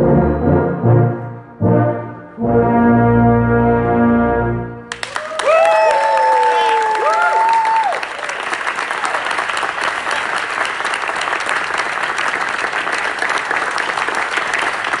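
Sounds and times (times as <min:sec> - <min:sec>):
euphonium and tuba chord: 0:00.0 - 0:04.9
audience applause: 0:04.9 - 0:15.0.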